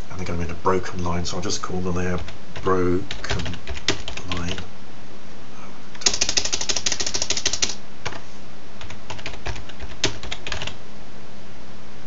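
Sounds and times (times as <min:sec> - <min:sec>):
computer keyboard typing: 0:02.1 - 0:04.6, 0:06.0 - 0:08.2, 0:08.8 - 0:10.8.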